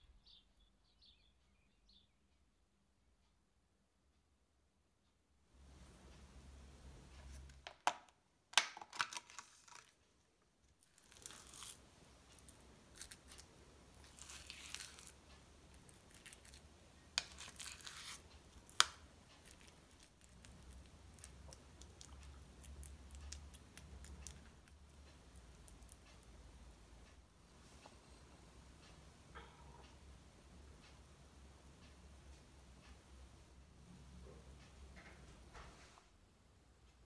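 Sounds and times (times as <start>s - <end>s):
plastic tub crinkling: 7.5s - 10.0s.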